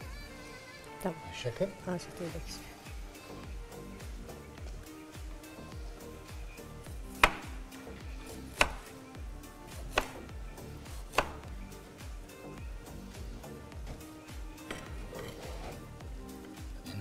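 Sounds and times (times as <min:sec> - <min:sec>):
background music: 0:00.0 - 0:17.0
knife chopping on cutting board: 0:07.1 - 0:07.6, 0:08.3 - 0:09.0, 0:09.7 - 0:11.5, 0:14.7 - 0:15.8.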